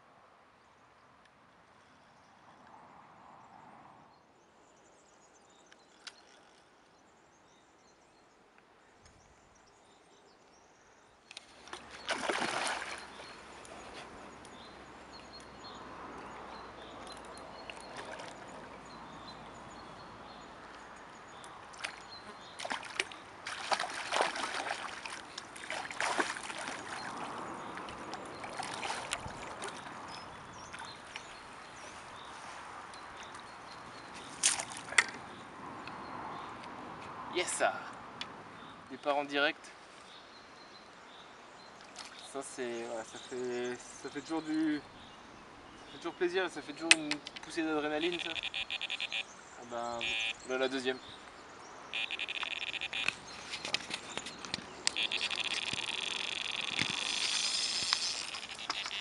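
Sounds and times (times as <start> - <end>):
water sloshing and splashing: 11.3 - 14.2, 16.9 - 18.9, 21.6 - 32.1, 34.2 - 35.2, 41.8 - 42.3.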